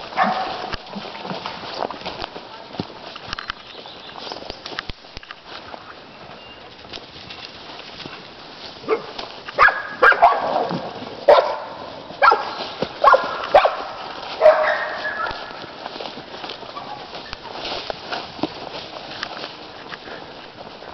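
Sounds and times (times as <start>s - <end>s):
dog barking: 0.2s - 0.6s, 8.9s - 10.7s, 11.3s - 15.4s.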